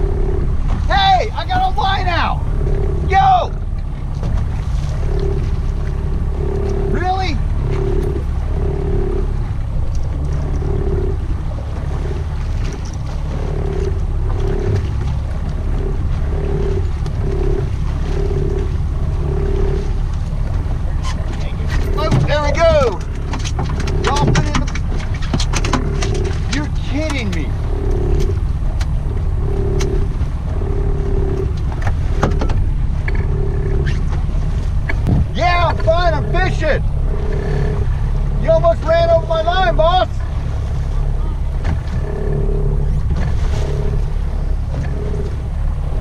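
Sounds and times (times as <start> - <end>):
outboard motor running: 0.0 - 46.0
water noise around hull: 0.0 - 46.0
short knocks: 34.8 - 35.9.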